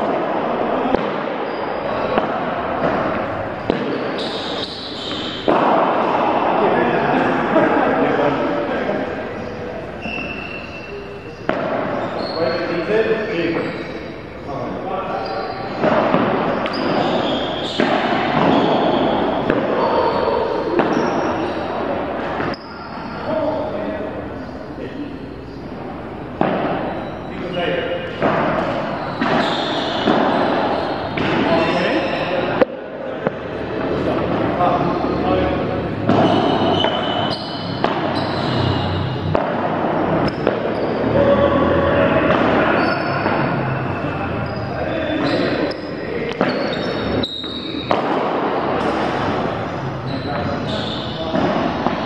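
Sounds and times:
sharp echoing knocks: 0.0s - 7.3s
balls bouncing on indoor court: 0.0s - 52.0s
noisy din: 0.0s - 52.0s
players and voices in sports hall: 0.0s - 52.0s
short high squeaks: 4.2s - 5.5s, 10.0s - 12.8s, 36.2s - 39.2s.

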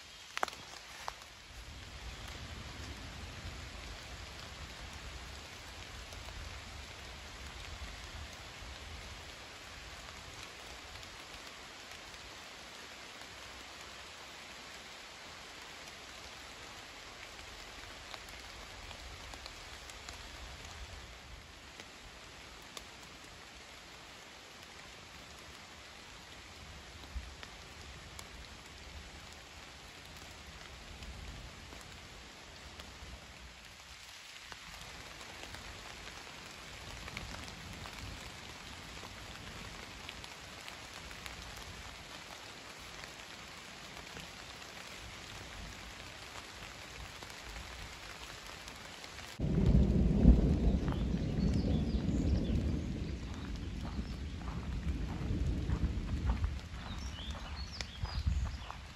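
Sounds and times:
steady rain falling: 0.0s - 58.9s
loud thunderclap: 49.4s - 56.7s.

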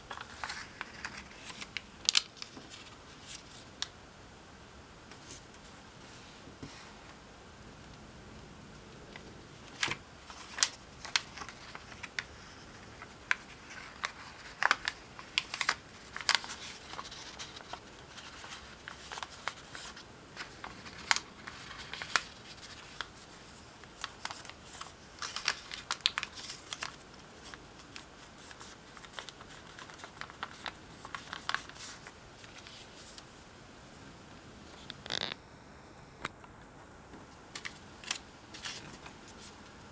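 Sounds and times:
paper crinkling while folded: 0.0s - 3.9s, 9.6s - 33.3s, 37.6s - 39.9s.

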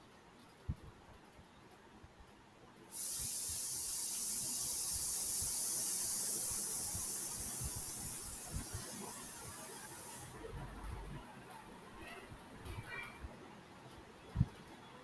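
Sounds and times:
high hiss of line noise: 2.9s - 11.6s.

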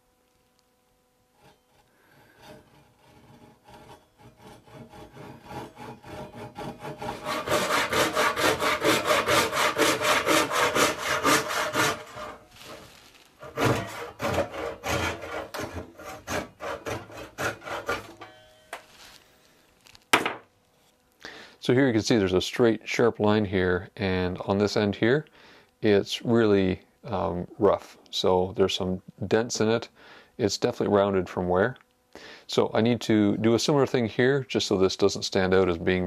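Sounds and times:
handsaw cutting wood: 2.2s - 18.3s.

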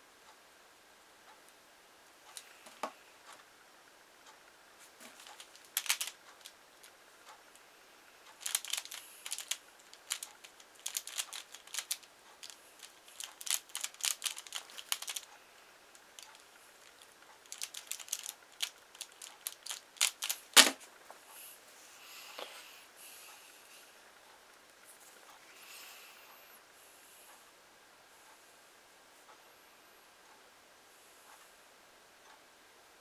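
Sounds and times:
plastic puzzle clicking: 5.0s - 6.5s, 8.4s - 15.3s, 16.0s - 20.8s
puzzle thumping on mat: 20.6s - 20.8s.

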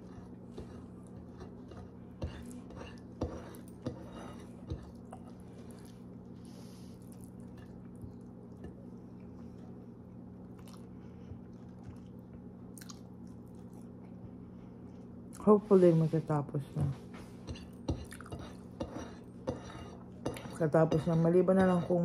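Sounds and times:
steady low hum: 0.0s - 22.0s
quiet chewing: 4.8s - 9.8s, 10.4s - 15.5s.

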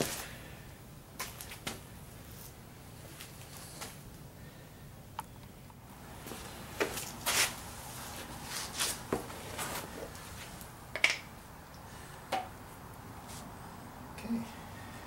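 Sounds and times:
jar set down on concrete: 11.0s - 11.3s.

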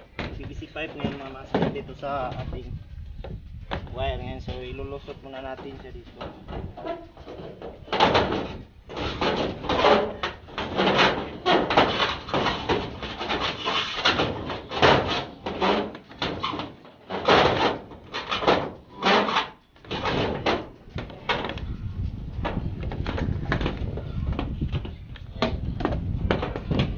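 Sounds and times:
conduit scraping against metal: 0.0s - 26.9s.

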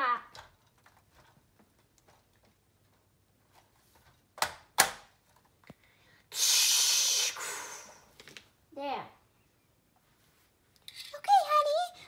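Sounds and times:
breathy rush of noise: 5.8s - 8.2s.

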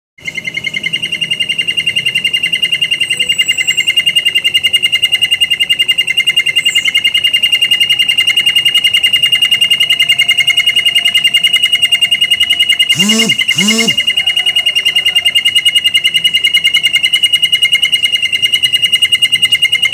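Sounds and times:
canary singing rolling trill: 12.7s - 14.7s
high sliding bird notes: 12.9s - 14.1s.

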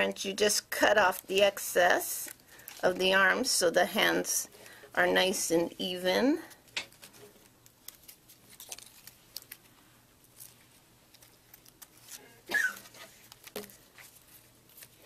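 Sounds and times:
paper rustling: 6.6s - 15.0s.

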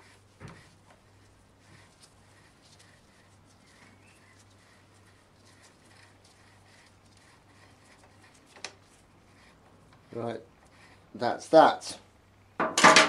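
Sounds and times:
screwdriver scraping and ticking: 3.6s - 11.0s.

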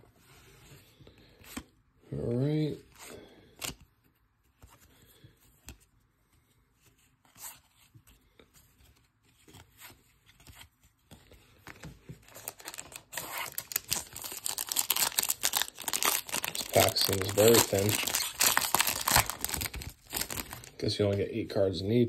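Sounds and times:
foil wrapper crinkling and tearing: 12.3s - 20.8s.

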